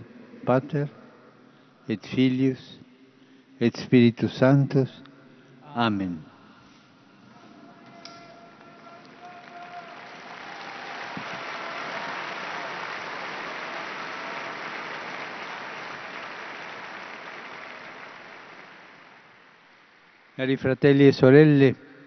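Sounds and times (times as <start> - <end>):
large crowd applauding: 7.8 - 20.6.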